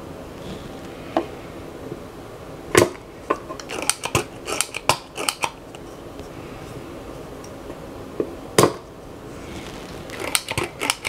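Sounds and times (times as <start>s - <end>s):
metal hand tools clicking: 3.6s - 5.6s, 10.2s - 11.0s.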